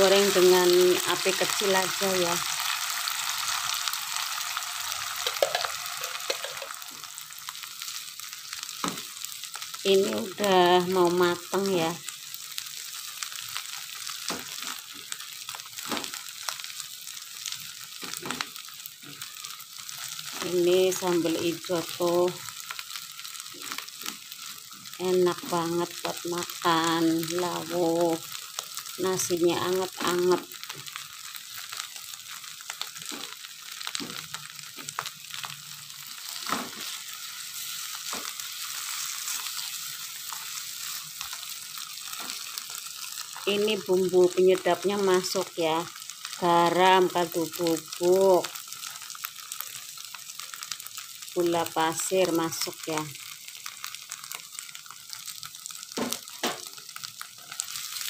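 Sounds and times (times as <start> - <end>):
paste sizzling in oil: 0.0 - 58.0
spatula scraping wok: 36.1 - 43.4.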